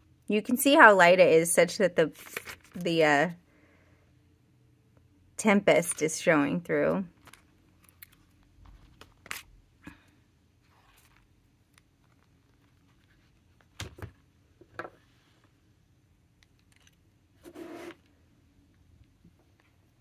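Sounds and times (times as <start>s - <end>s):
paper pages rustling: 2.2s - 2.8s, 10.6s - 14.2s.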